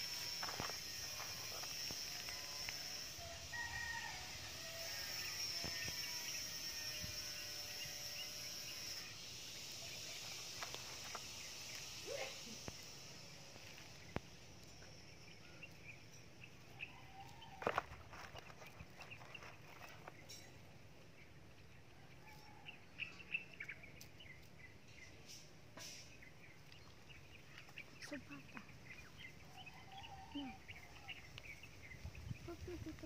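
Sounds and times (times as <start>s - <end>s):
steady high-pitched hum: 0.0s - 33.0s
rooster crowing: 2.1s - 6.4s, 16.8s - 17.9s, 22.0s - 23.2s, 29.5s - 31.1s.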